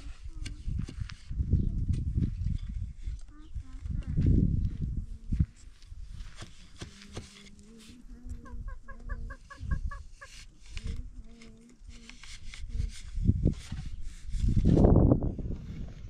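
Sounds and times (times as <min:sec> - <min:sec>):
chickens clucking: 0:06.8 - 0:12.1.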